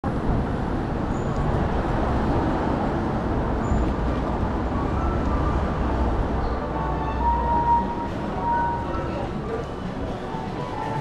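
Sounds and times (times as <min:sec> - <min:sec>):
distant traffic rumble: 0:00.0 - 0:11.0
general hubbub: 0:03.8 - 0:11.0.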